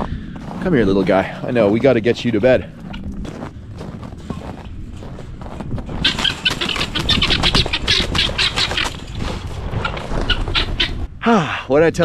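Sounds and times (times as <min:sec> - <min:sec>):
scuffling in snow: 0:03.0 - 0:06.3
guinea fowl alarm calls: 0:06.0 - 0:09.1, 0:09.7 - 0:11.0.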